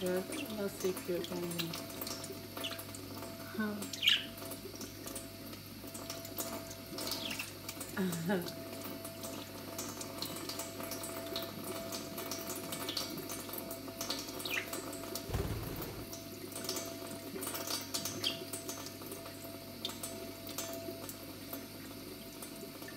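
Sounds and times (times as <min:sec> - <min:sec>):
low bump: 0:15.3 - 0:16.4.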